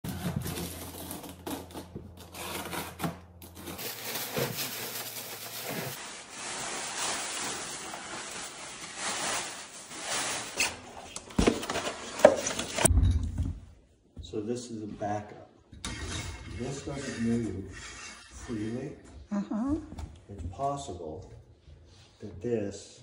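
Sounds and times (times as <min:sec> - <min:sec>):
bubble wrap crinkling: 0:00.1 - 0:11.2.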